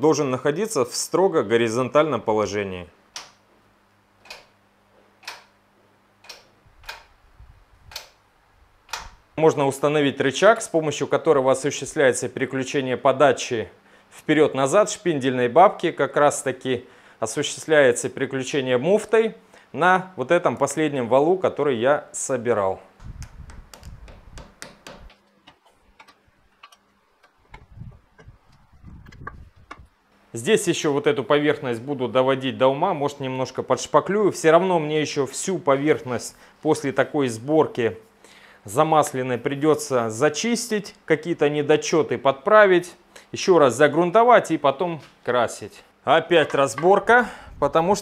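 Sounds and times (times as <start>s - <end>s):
faint sharp ticking clicks: 3.1s - 3.4s, 4.2s - 4.6s, 5.2s - 5.6s, 6.2s - 7.1s, 7.9s - 8.2s, 8.9s - 9.2s
metallic clicks and taps: 4.2s - 4.6s, 5.2s - 5.6s, 6.2s - 7.1s, 7.9s - 8.2s, 23.5s - 29.9s
low hum: 22.9s - 30.1s.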